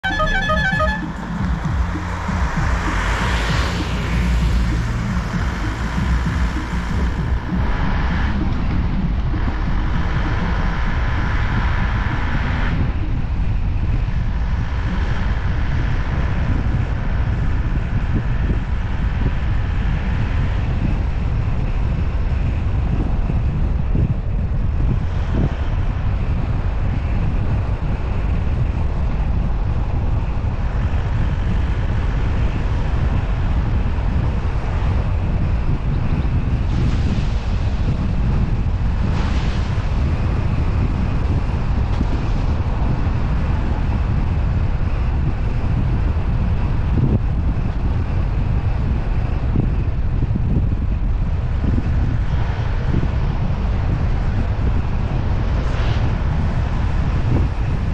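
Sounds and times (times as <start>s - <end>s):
car engine: 0.0s - 23.3s
wind rumble on microphone: 0.0s - 57.9s
tyre noise on wet road: 0.5s - 20.7s.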